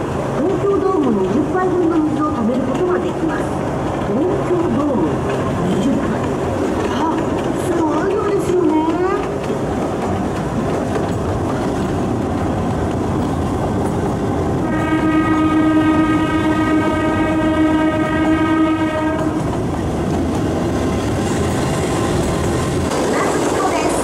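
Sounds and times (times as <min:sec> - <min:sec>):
train wheels rumbling on rails: 0:00.0 - 0:24.0
train horn blast: 0:14.6 - 0:19.5.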